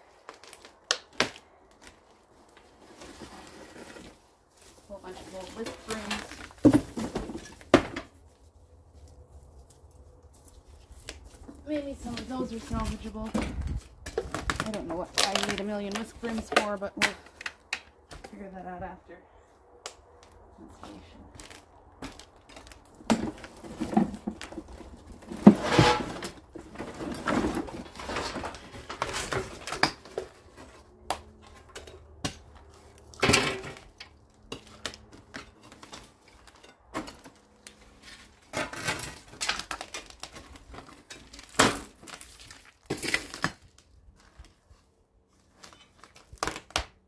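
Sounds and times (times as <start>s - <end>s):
clattering and scraping of junk: 1.8s - 4.3s, 5.0s - 8.3s, 21.4s - 44.8s.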